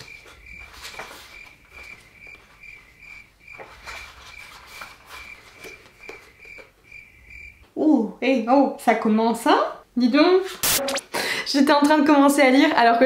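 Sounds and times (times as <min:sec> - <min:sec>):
cricket chirping: 0:00.0 - 0:07.6.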